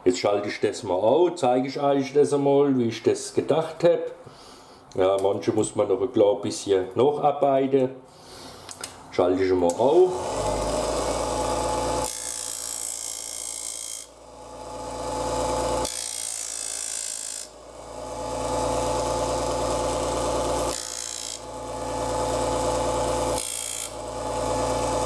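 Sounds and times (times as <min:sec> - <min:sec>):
disc sander motor hum: 0:10.1 - 0:25.0
wood grinding on sanding disc: 0:10.2 - 0:25.0.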